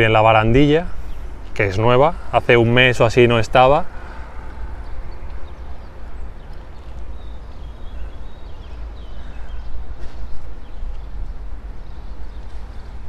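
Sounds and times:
wind rumbling on microphone: 0.0s - 13.0s
footsteps on paving: 5.2s - 7.9s.

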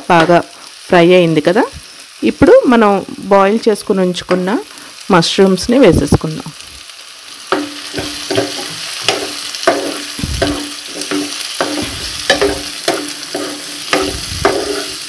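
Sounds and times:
food sizzling in oil: 0.0s - 15.0s
spoon knocking and scraping pan: 7.5s - 15.0s.

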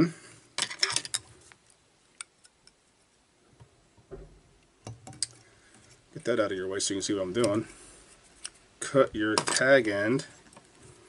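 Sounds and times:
soft bump: 4.0s - 4.6s.

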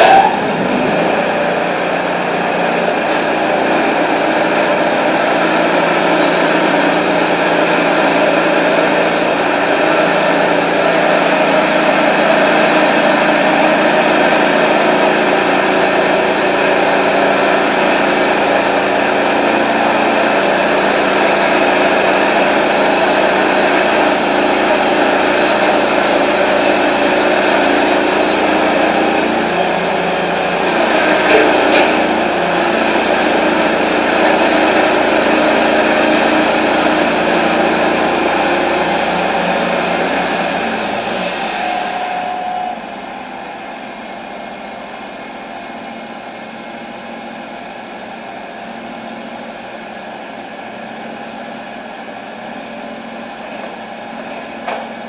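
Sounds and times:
band sawmill cutting log: 0.0s - 42.9s.

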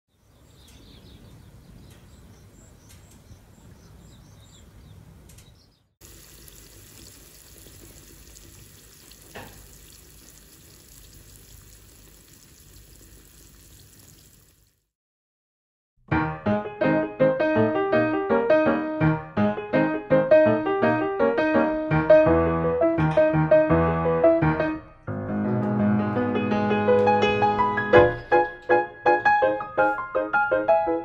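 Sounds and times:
oil sizzling in skillet: 6.0s - 14.8s
wood fire crackling: 6.0s - 14.8s.

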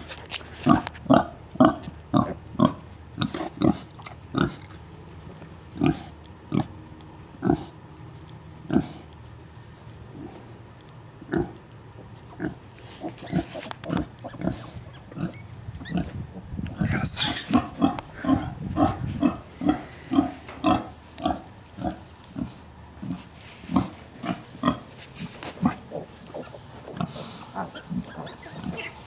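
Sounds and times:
sow grunting: 12.3s - 24.9s, 25.5s - 29.0s
pig squealing: 13.0s - 16.2s, 17.1s - 17.8s, 25.6s - 29.0s.

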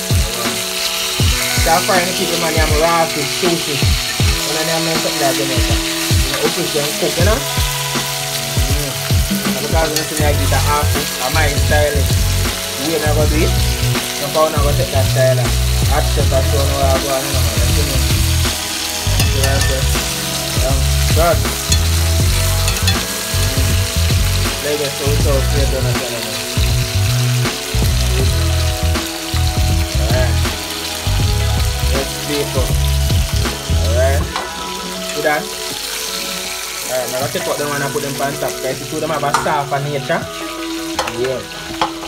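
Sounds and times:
fish sizzling in hot oil: 0.0s - 42.0s
utensil stirring in pot: 18.3s - 25.0s.

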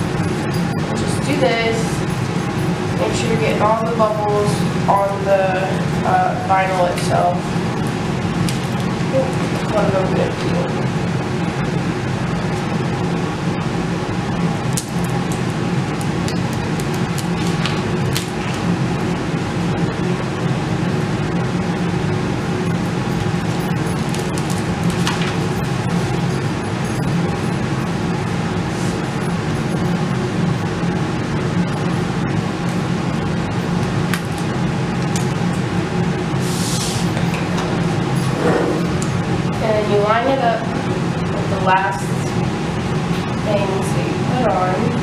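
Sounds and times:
loud machine hum: 0.0s - 45.0s
low mechanical drone: 0.0s - 45.0s
tape crackling as peeled: 14.7s - 18.6s.

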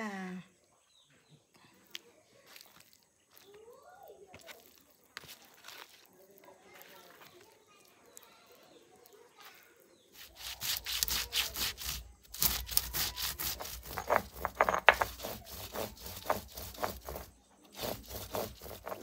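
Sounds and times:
stone roller scraping on stone: 10.1s - 19.0s.

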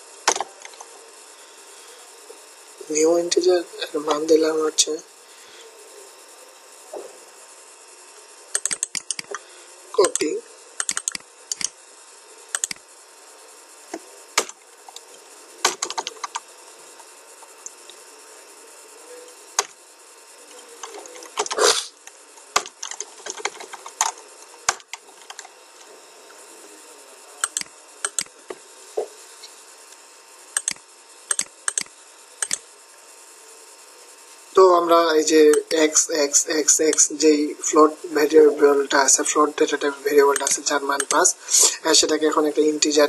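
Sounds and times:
keyboard and mouse clicking: 8.6s - 9.4s, 10.0s - 11.7s, 12.5s - 12.8s, 27.4s - 28.3s, 30.6s - 32.6s.

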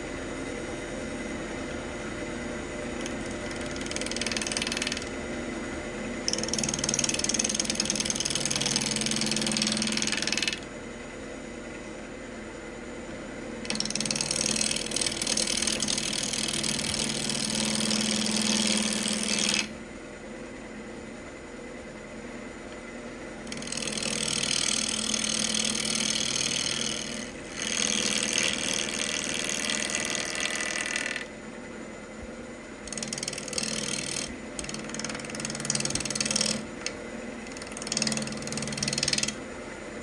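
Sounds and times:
wood lathe humming: 2.9s - 5.2s, 6.0s - 10.7s, 13.7s - 19.7s, 23.5s - 31.4s, 32.8s - 39.6s
gouge cutting spinning wood: 3.0s - 5.1s, 6.3s - 10.6s, 13.7s - 19.7s, 23.5s - 31.3s, 32.9s - 39.4s.

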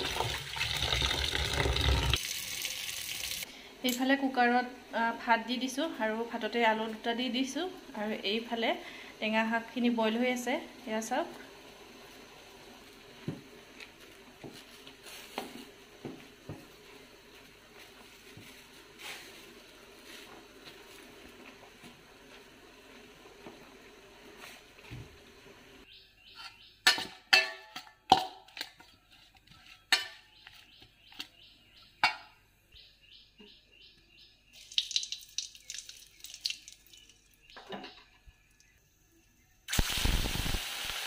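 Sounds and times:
greens bubbling in a pot: 34.6s - 37.5s.

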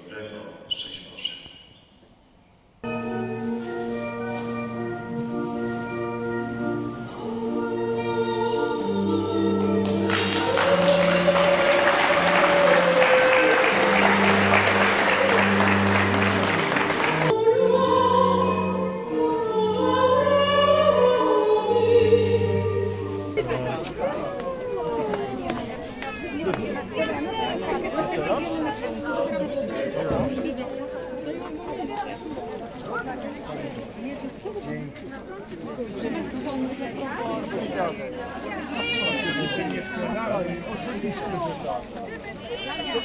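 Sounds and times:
church organ chords: 2.8s - 8.8s, 9.8s - 17.3s
person singing: 6.4s - 26.8s
people singing: 6.8s - 30.8s.

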